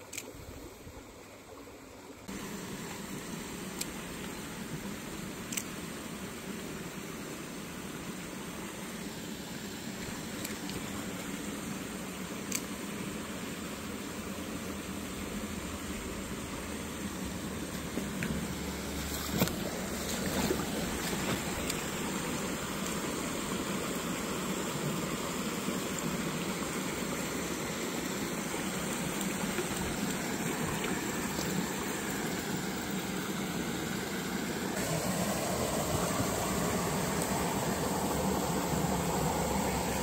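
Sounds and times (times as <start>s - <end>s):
stream rushing over cascade: 0.1s - 40.0s.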